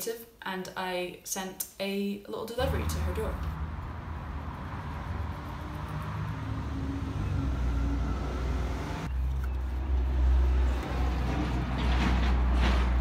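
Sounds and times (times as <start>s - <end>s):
road traffic rumble: 2.6s - 13.0s
vehicle engine hum: 2.6s - 13.0s.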